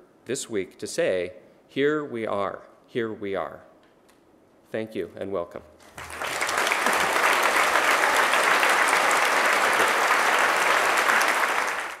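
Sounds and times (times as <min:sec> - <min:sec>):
large audience applauding: 0:05.9 - 0:12.0.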